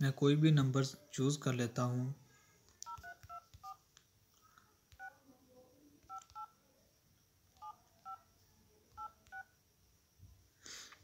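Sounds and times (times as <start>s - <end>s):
phone keypad touch tones: 2.8s - 3.8s, 4.9s - 5.2s, 6.0s - 6.6s, 7.5s - 8.3s, 8.9s - 9.5s.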